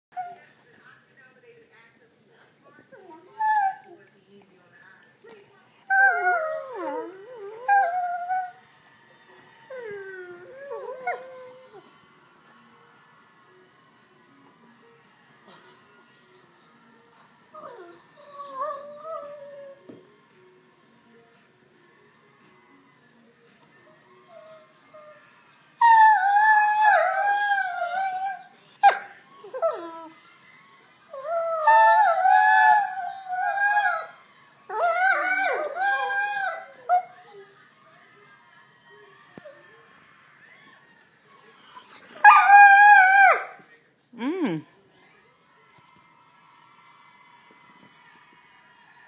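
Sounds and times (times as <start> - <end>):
puppy howling and whining: 0.1 - 0.4, 3.0 - 4.0, 5.9 - 9.1, 9.7 - 11.9, 17.5 - 19.9, 24.1 - 25.2, 25.8 - 30.2, 31.1 - 37.6, 40.4 - 43.6.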